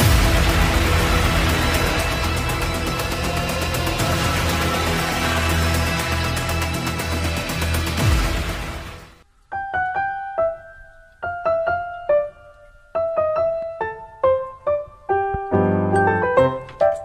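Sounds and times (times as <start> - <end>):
slow keyboard melody: 9.2 - 17.0.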